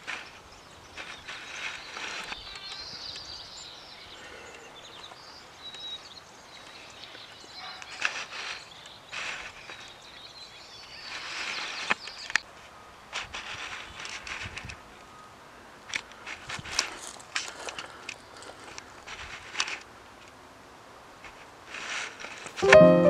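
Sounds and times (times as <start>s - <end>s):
small birds chirping: 0.0s - 12.5s.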